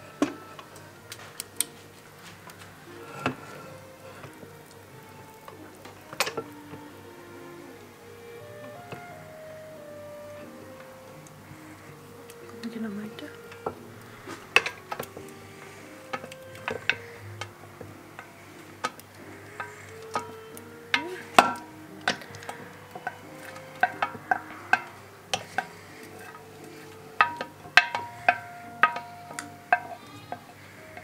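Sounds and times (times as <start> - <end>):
light background music: 0.0 - 31.0
wooden spoon knocking steel bowl: 20.9 - 31.0.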